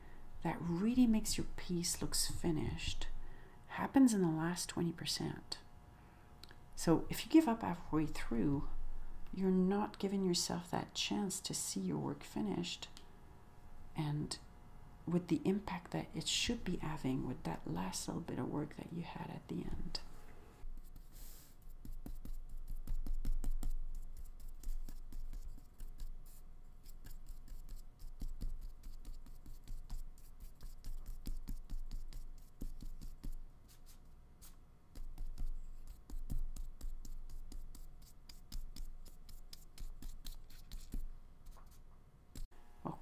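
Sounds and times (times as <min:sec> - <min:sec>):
paintbrush strokes on paper: 0:20.0 - 0:42.5.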